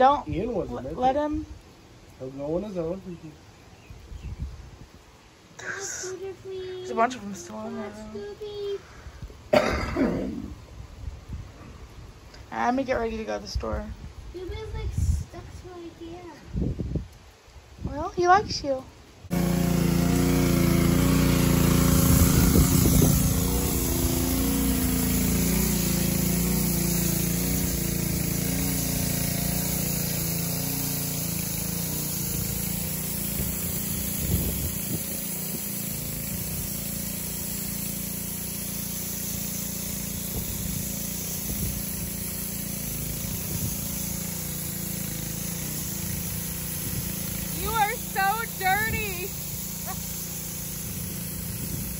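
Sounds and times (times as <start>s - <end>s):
steady hiss: 0.0s - 51.9s
engine running steadily: 19.3s - 51.9s.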